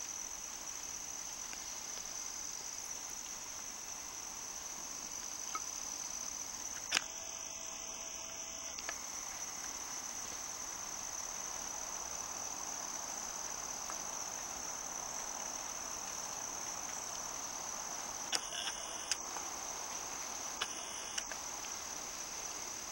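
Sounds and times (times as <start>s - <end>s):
crickets trilling: 0.0s - 22.9s
sharp clicks: 18.3s - 19.2s, 20.6s - 21.4s.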